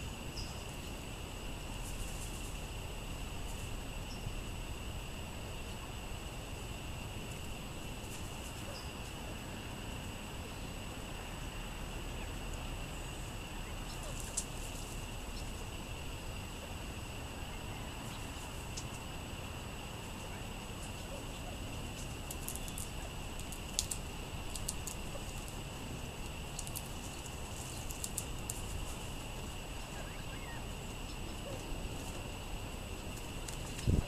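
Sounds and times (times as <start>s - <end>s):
constant high hum: 0.0s - 34.0s
outdoor hiss and low rumble: 0.0s - 34.0s
songbird chips: 13.6s - 15.5s, 20.2s - 32.3s.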